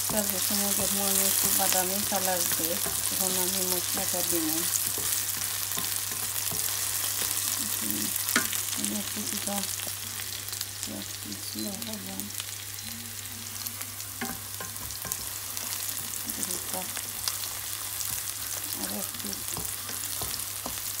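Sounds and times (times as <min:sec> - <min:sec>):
onions sizzling in oil: 0:00.0 - 0:21.0
wooden spatula stirring: 0:00.1 - 0:07.6, 0:16.4 - 0:21.0.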